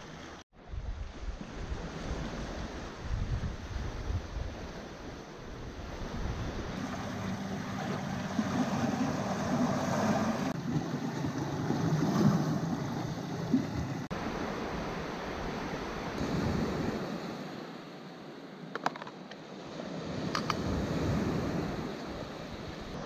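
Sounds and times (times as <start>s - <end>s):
sea surf washing on shore: 0.0s - 18.8s, 19.4s - 23.0s
wind buffeting microphone: 0.6s - 14.8s.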